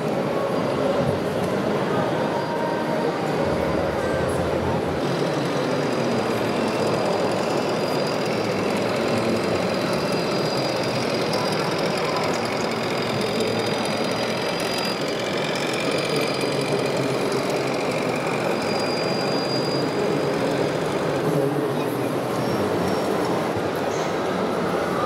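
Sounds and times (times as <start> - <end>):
simulated diesel engine running: 3.3 - 21.4.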